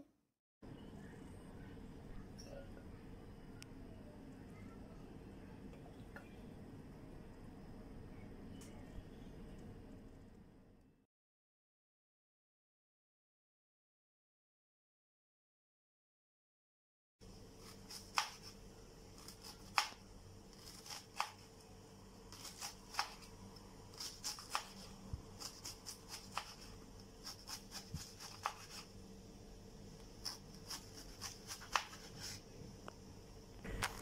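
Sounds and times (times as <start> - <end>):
knife slicing cabbage on board: 17.6 - 18.6, 20.6 - 21.5, 22.3 - 23.3, 23.9 - 28.9, 30.2 - 32.4.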